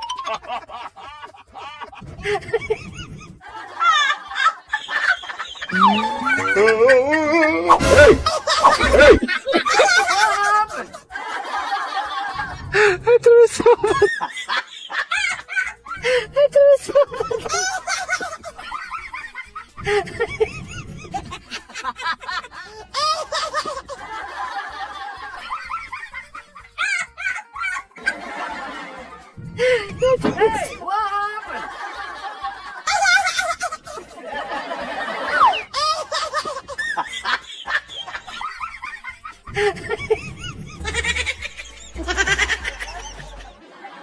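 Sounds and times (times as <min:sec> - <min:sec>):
background music: 0:00.0 - 0:44.0
laughter: 0:00.2 - 0:44.0
person snickering: 0:05.7 - 0:09.4, 0:40.7 - 0:43.5.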